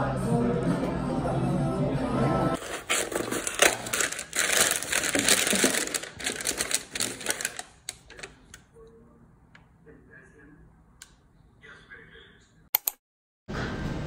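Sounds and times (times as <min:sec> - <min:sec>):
packing paper and cardboard rustling: 0:02.6 - 0:08.3.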